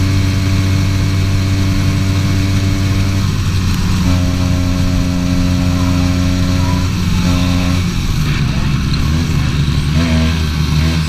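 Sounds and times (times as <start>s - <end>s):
two-stroke kart engine revving: 0.0s - 11.0s.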